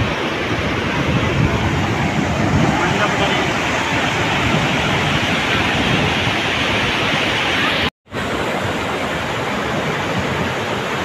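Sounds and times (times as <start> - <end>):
river water rushing over rocks: 0.0 - 11.0.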